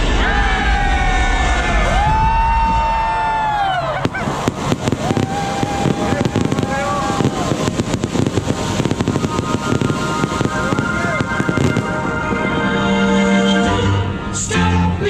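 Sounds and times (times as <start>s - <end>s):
crowd shouting and cheering: 0.0s - 15.0s
fireworks crackling and popping: 3.0s - 12.7s.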